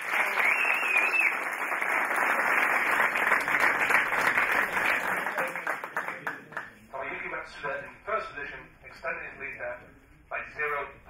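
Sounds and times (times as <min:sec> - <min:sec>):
crowd applauding: 0:00.0 - 0:06.8.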